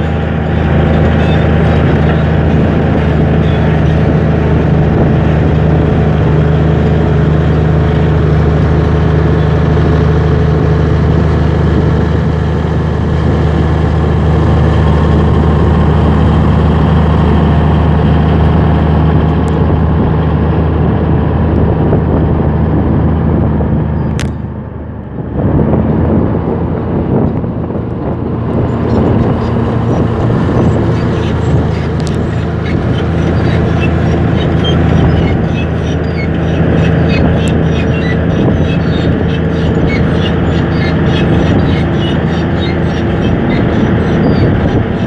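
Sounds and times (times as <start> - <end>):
bulldozer diesel engine running: 0.0 - 45.0
steel tracks clicking: 28.5 - 45.0.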